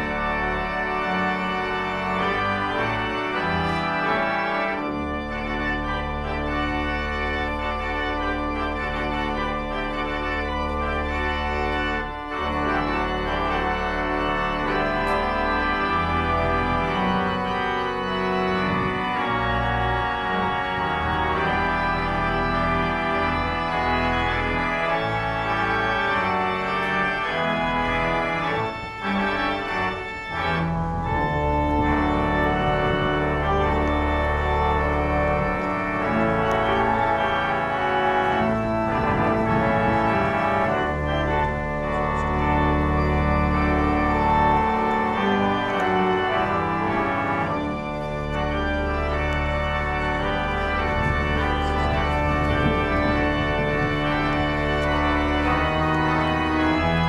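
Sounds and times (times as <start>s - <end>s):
organ chords: 0.0s - 57.0s
deep sustained bass notes: 30.2s - 45.9s, 49.4s - 56.8s.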